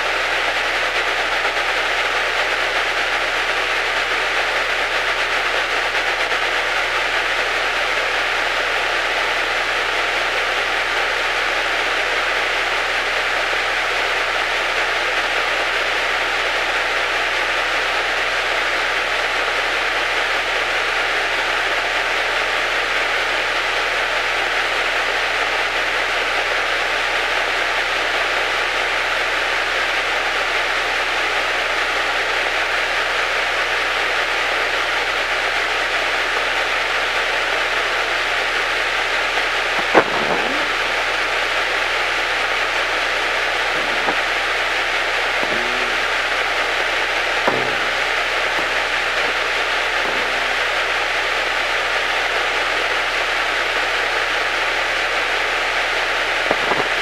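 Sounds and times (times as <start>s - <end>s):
radio hiss: 35.0s - 57.0s.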